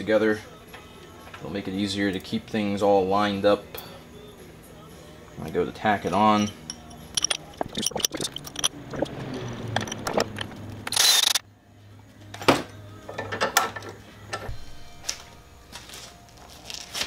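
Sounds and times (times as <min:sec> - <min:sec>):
metal parts clinking: 0:06.1 - 0:11.4
ratchet clicking: 0:06.6 - 0:09.1, 0:09.7 - 0:11.4.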